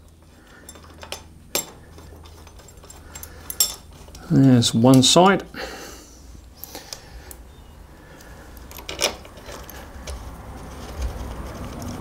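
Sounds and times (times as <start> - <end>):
metal bolt clicks and clinks: 0.5 - 5.4, 8.6 - 10.2.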